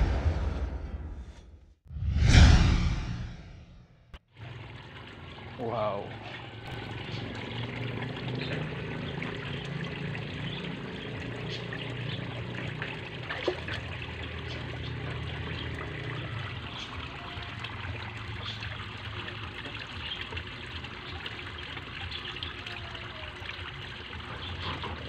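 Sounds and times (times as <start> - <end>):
low hum: 0.0 - 4.2
water trickling: 4.3 - 25.0.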